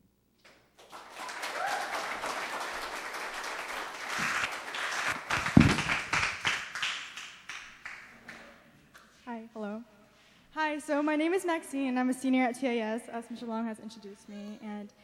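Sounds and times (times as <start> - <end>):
congregation applauding: 0.8 - 8.6.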